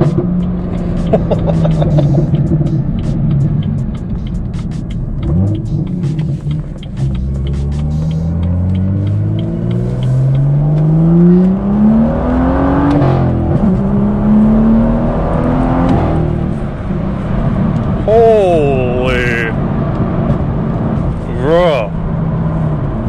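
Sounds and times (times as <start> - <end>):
gear shift: 0.0 - 18.1
car engine accelerating hard: 0.0 - 23.0.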